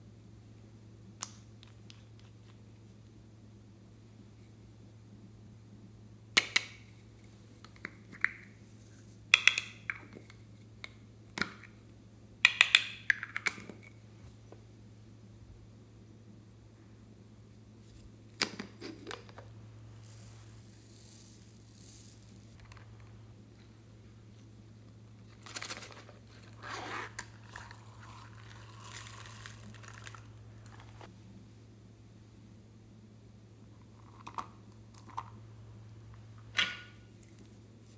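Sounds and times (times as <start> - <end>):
steady low hum: 0.0 - 37.9
zipper being opened: 26.5 - 29.9.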